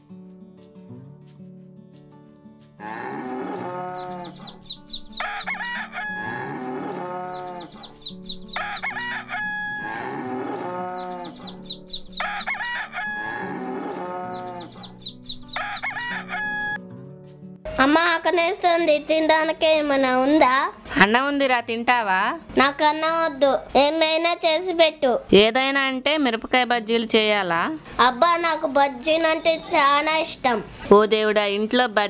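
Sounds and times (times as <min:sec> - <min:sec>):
quiet background music: 0:00.0 - 0:32.0
rooster crowing: 0:03.3 - 0:07.9, 0:08.5 - 0:16.8.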